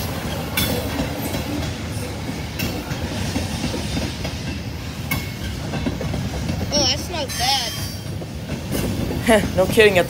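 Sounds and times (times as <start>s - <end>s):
train wheels rumbling on rail: 0.0s - 10.0s
wheels clacking over rail joints: 0.0s - 10.0s.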